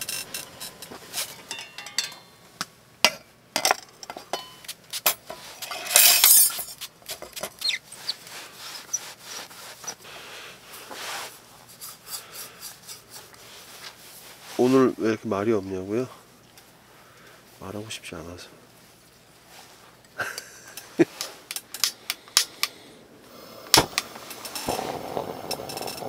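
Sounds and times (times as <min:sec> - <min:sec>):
camp cookware clinking: 0:00.0 - 0:02.4, 0:03.0 - 0:07.6.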